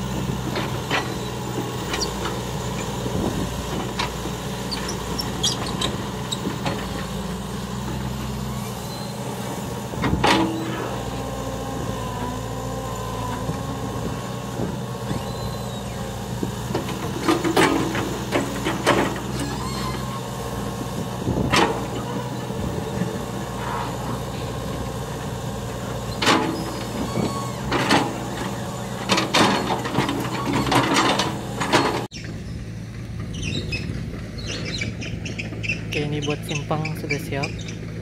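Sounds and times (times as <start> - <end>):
excavator diesel engine running: 0.0 - 38.0.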